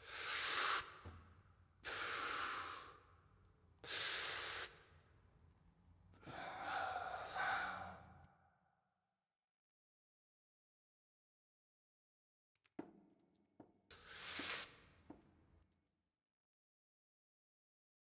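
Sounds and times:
man breathing heavily: 1.8 - 3.2, 6.2 - 8.2.

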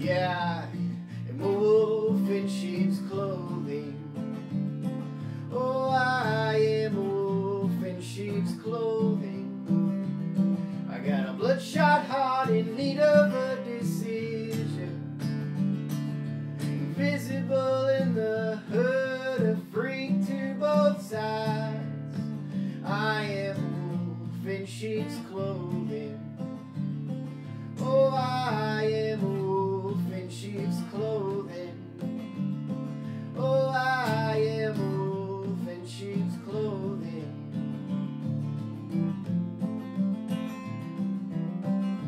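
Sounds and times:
man singing wordless phrases: 0.0 - 4.2, 5.3 - 15.2, 16.6 - 26.4, 27.6 - 32.0, 33.2 - 37.5
acoustic guitar strumming: 0.0 - 42.0.

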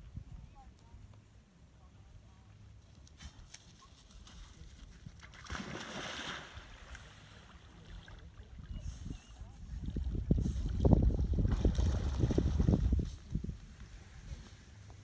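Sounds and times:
dog splashing into water: 5.2 - 6.9.

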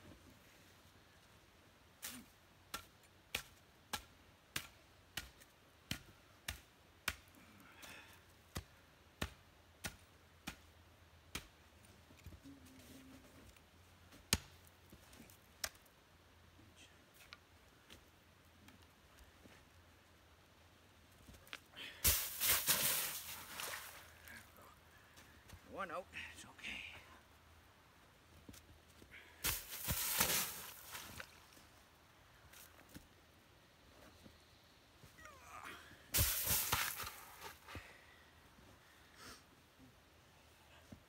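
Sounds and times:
hatchet chopping log: 2.7 - 7.3, 8.5 - 10.7, 11.3 - 11.6.

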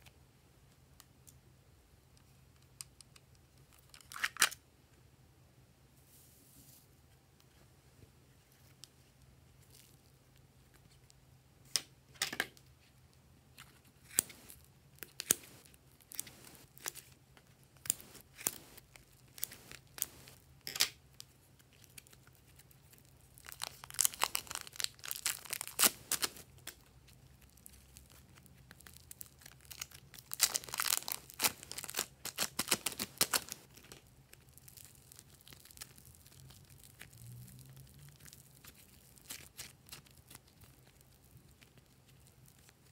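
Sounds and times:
plastic packets crinkling: 17.8 - 42.9.

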